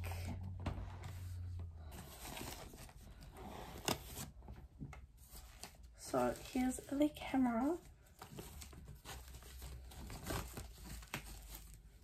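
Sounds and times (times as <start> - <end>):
plastic packaging crinkling: 5.3 - 12.0.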